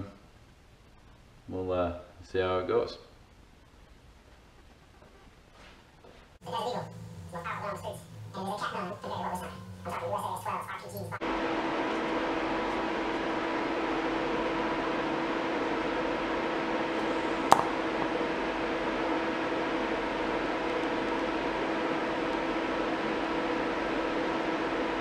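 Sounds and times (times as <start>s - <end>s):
welder humming and hissing: 11.2s - 25.0s.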